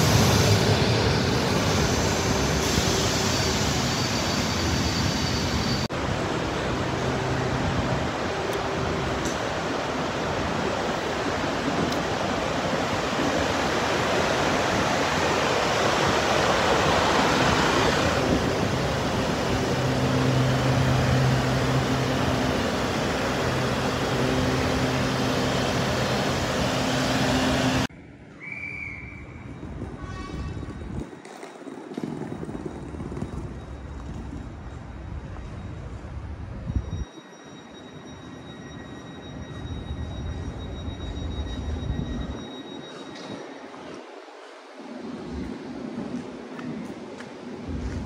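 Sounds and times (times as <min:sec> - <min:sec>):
rushing noise of running equipment: 0:00.0 - 0:27.9.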